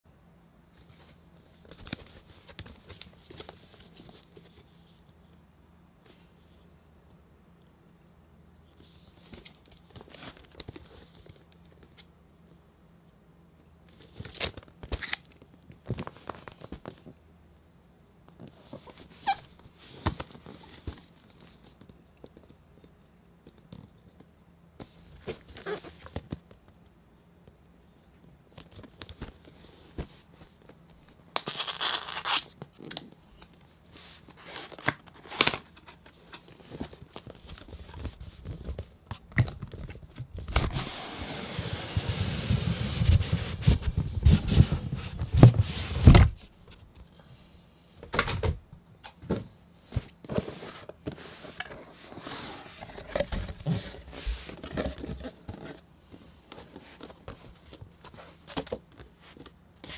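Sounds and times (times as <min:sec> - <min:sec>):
cardboard box sliding scrape: 0:40.7 - 0:45.0, 0:50.4 - 0:53.0.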